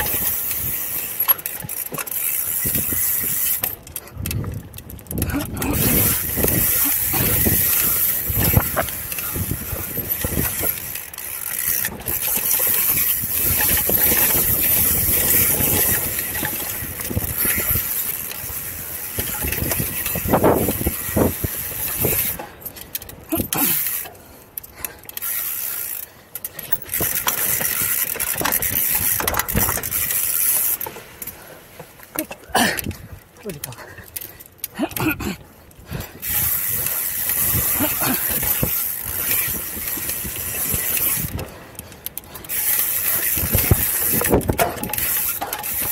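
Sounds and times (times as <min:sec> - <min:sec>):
bike rattling over bumps: 0:00.0 - 0:45.9
bike tyres on dirt: 0:00.0 - 0:45.9
wind rushing over microphone: 0:02.6 - 0:11.0, 0:11.6 - 0:22.4, 0:43.1 - 0:45.0.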